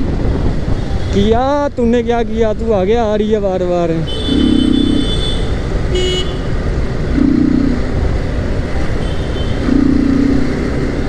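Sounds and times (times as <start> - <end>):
motorcycle engine and road noise: 0.0 - 11.0.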